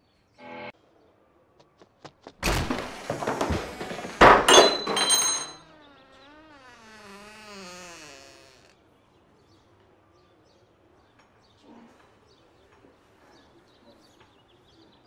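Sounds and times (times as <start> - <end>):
wooden door banging: 2.4 - 5.6.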